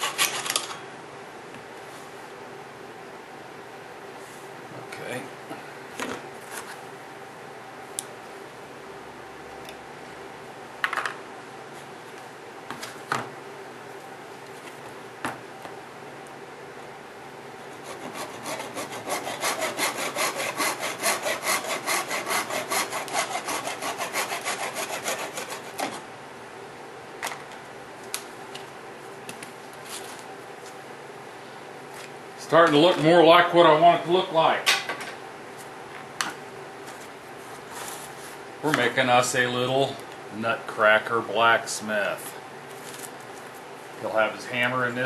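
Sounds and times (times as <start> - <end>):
handsaw cutting wood: 0.0 - 0.4, 17.8 - 26.0.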